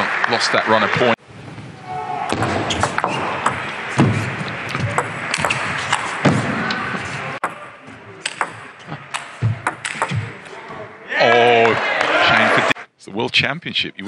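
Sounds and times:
table tennis ball clicks: 8.2s - 10.2s.

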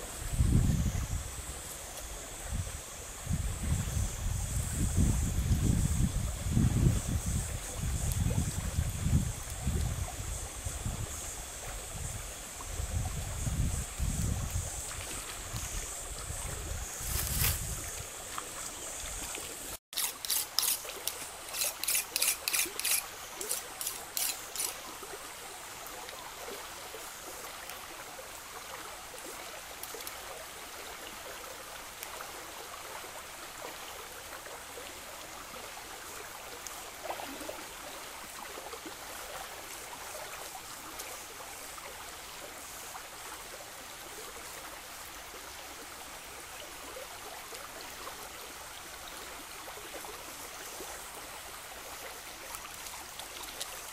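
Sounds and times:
stream trickling over rocks: 0.0s - 53.9s
knife scraping: 20.0s - 24.8s.

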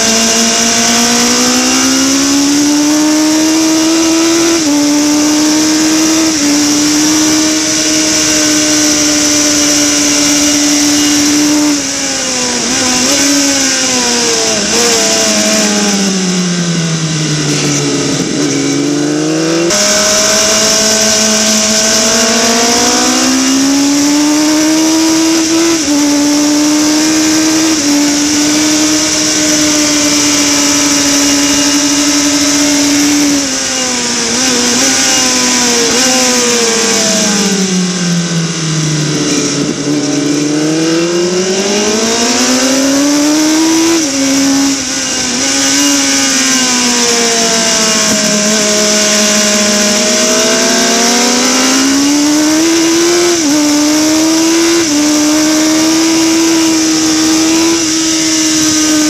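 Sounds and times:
motorcycle engine revving: 0.0s - 59.0s
wind rush on microphone: 34.2s - 47.0s.

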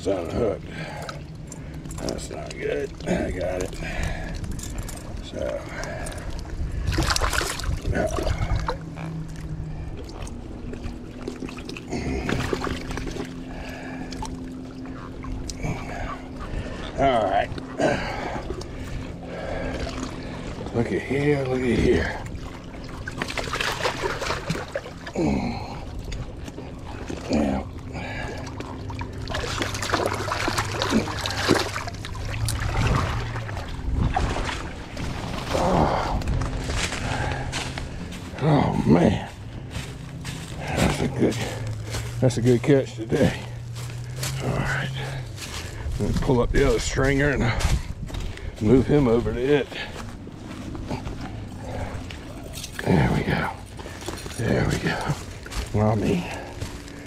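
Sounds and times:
faint steady hum: 0.0s - 57.0s
water splashing and trickling: 0.0s - 57.0s
rustling against dry leaves: 33.1s - 57.0s.

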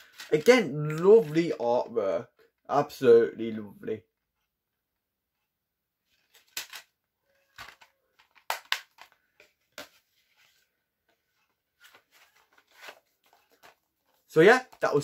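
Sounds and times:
plastic case clicks and snaps: 6.4s - 6.9s, 7.6s - 9.2s.

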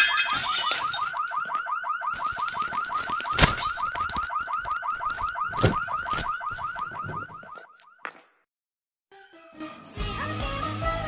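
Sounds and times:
car alarm chirping: 0.0s - 8.2s.

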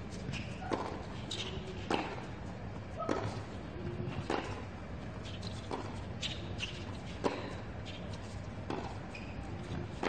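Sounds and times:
low stadium hum: 0.0s - 10.0s
tennis ball struck by rackets: 1.9s - 2.2s, 3.0s - 3.4s, 4.2s - 4.6s, 8.7s - 9.0s.

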